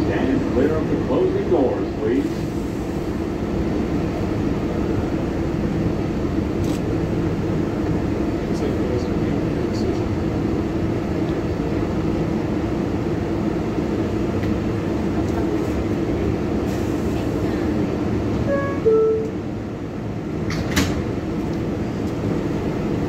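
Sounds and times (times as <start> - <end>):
subway car rumbling on rails: 0.0 - 23.0
two-note tone: 18.5 - 19.4.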